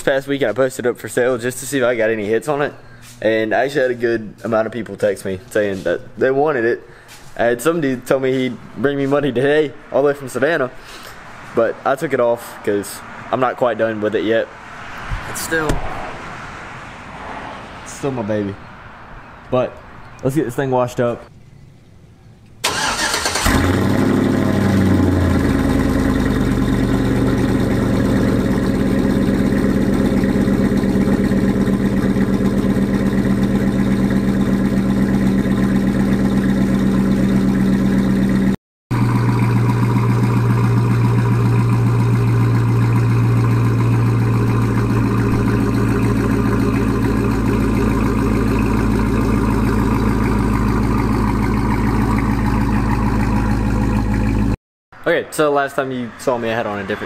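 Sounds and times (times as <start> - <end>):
pickup engine revving and idling: 23.3 - 54.6.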